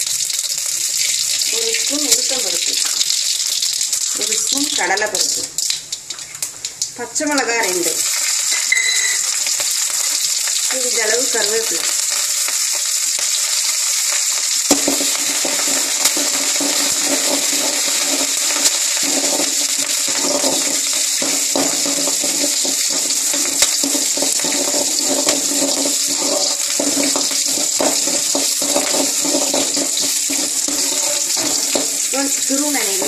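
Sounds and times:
seeds sizzling in hot oil: 0:00.0 - 0:33.0
spoon clinking against pan: 0:08.5 - 0:09.3
metal spoon scraping pan: 0:15.0 - 0:33.0.

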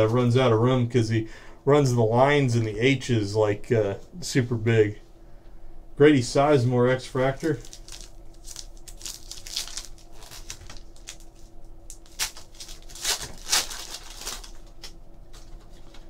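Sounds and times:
foil wrapper tearing and crinkling: 0:07.4 - 0:16.0.

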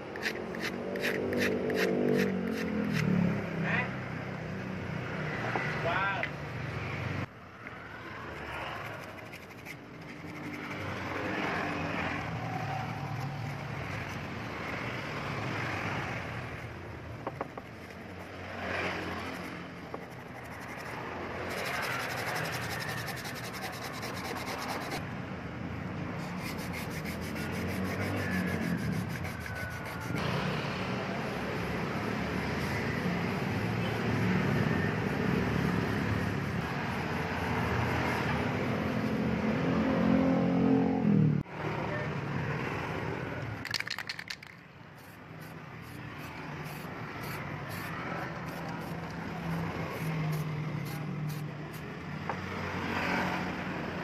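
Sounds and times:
sandpaper rubbing on steel: 0:00.1 - 0:03.1, 0:08.8 - 0:11.2, 0:20.0 - 0:25.0, 0:26.2 - 0:30.2.

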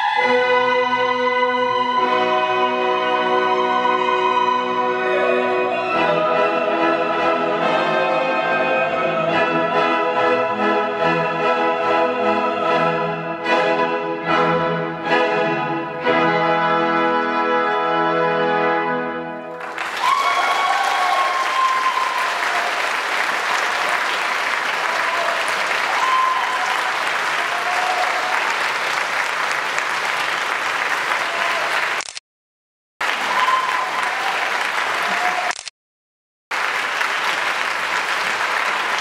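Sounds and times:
audience applause: 0:19.5 - 0:32.1, 0:33.0 - 0:35.7, 0:36.5 - 0:39.0
audience shouts: 0:19.8 - 0:28.7, 0:31.1 - 0:32.0, 0:33.0 - 0:35.6.

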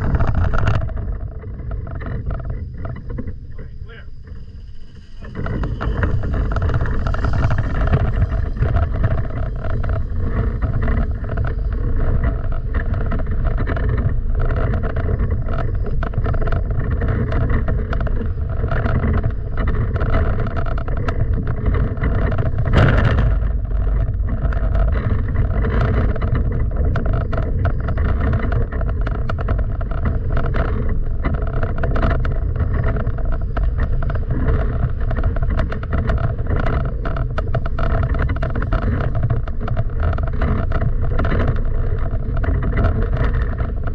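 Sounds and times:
rush of noise: 0:00.0 - 0:28.6
engine running: 0:00.0 - 0:33.1.

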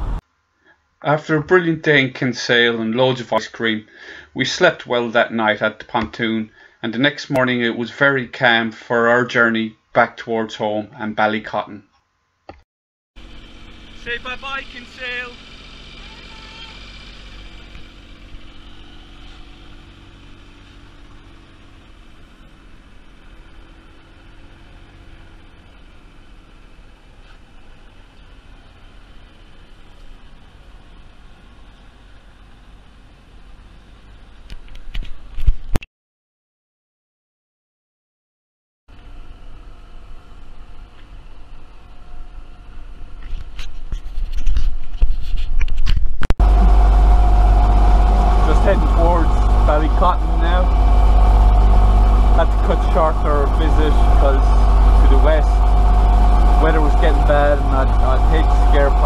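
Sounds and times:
outboard motor running: 0:13.2 - 0:34.8, 0:46.4 - 0:59.0.

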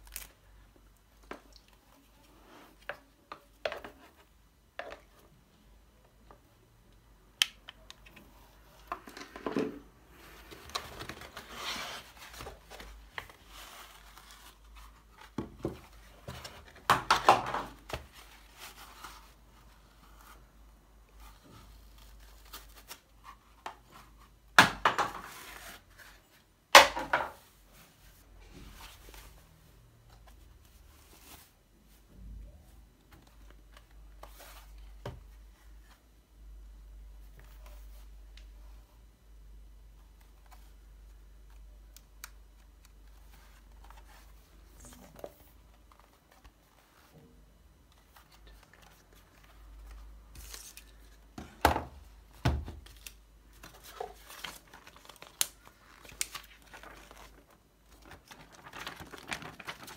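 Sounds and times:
cardboard rustling and scraping: 0:09.0 - 0:20.5.

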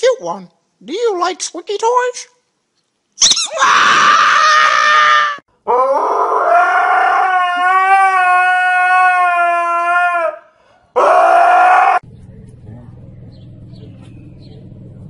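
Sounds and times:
dog howling: 0:03.6 - 0:12.1.

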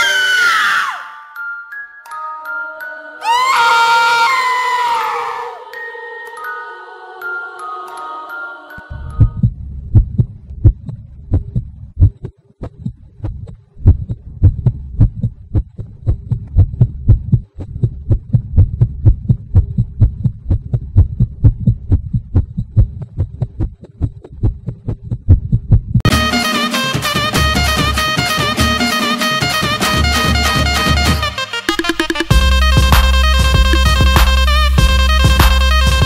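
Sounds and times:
fast heartbeat thumps: 0:08.9 - 0:26.1, 0:32.3 - 0:36.0.

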